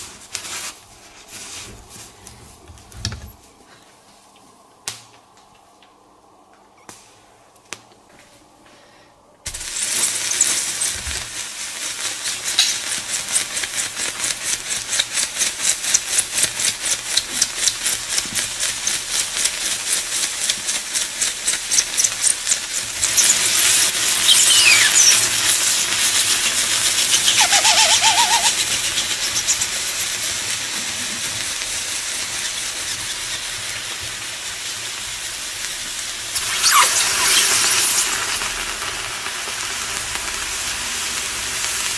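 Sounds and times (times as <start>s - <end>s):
steam hissing: 9.5s - 41.9s
squealing whistles: 23.0s - 29.7s, 36.4s - 38.1s.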